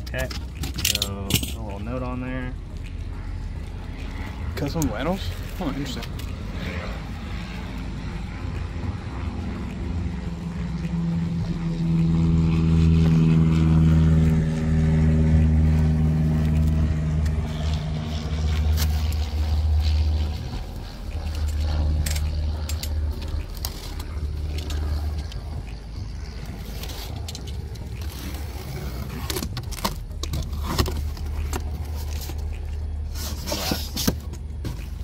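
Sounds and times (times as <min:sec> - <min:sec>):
vehicle engine humming: 0:00.0 - 0:35.0
blade cutting tape and wrap: 0:15.4 - 0:35.0.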